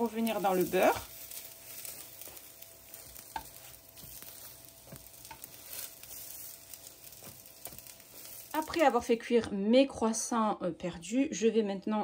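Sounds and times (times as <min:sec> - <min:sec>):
butter sizzling in frying pan: 0:00.0 - 0:09.4
tongs clicking: 0:02.9 - 0:08.0.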